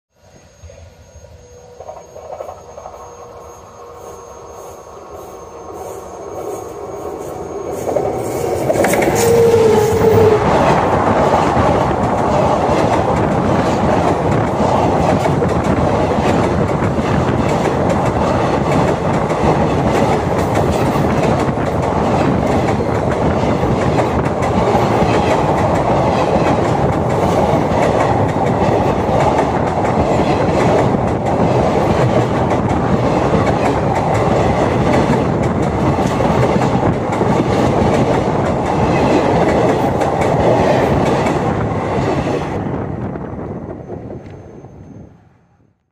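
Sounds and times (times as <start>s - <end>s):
brief tone: 0.2s - 8.1s, 44.2s - 45.8s
train wheels clattering overhead: 5.2s - 42.6s.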